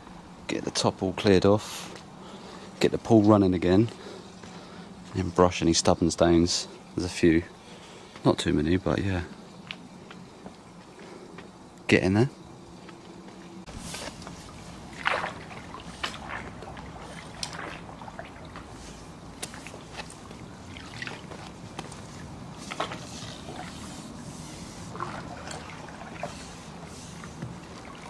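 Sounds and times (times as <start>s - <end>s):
pool water splashing: 13.6s - 28.0s.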